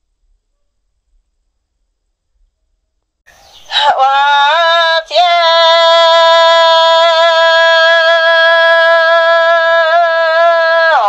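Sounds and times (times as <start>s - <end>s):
person singing unaccompanied: 3.6s - 11.0s.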